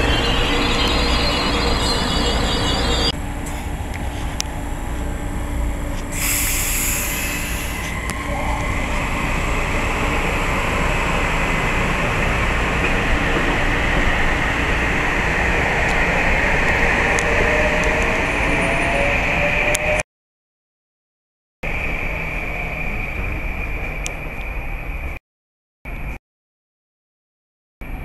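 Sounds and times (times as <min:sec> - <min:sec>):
faint rising whine: 0:00.0 - 0:12.9
electric train passing: 0:00.0 - 0:20.0, 0:21.7 - 0:25.1.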